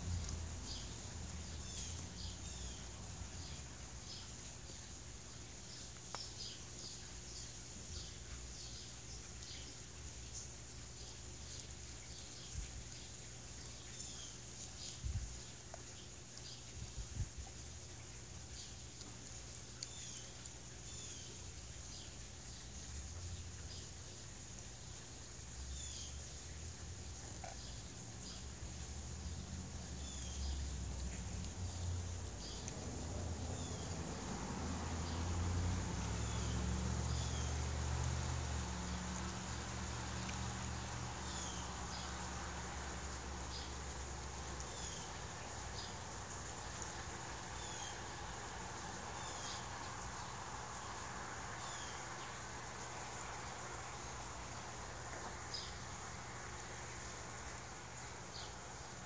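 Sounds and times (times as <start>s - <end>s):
low engine-like hum: 0.0s - 4.9s, 25.4s - 59.0s
faint high hiss: 0.0s - 59.0s.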